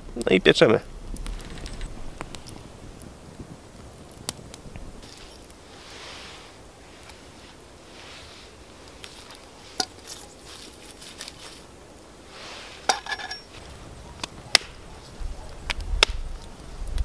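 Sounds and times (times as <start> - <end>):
campfire crackling: 0.0 - 17.0
metallic clink of camp pot: 12.9 - 13.6.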